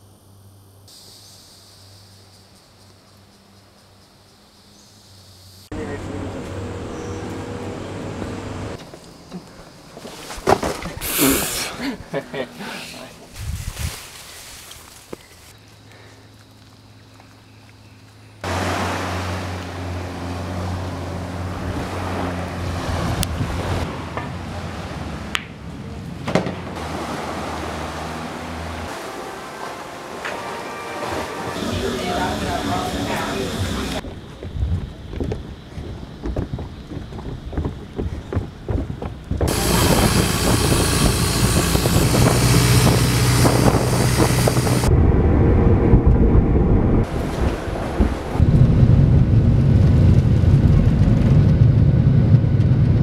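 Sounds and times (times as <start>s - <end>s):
motorboat engine drone: 5.7s - 8.8s, 18.4s - 34.0s, 39.5s - 53.0s
car road rumble: 5.7s - 11.2s, 18.4s - 53.0s
wind on microphone: 13.3s - 14.0s, 33.6s - 53.0s
surf rushing: 18.4s - 25.3s, 26.0s - 34.0s, 39.4s - 51.1s
low hum: 39.4s - 53.0s.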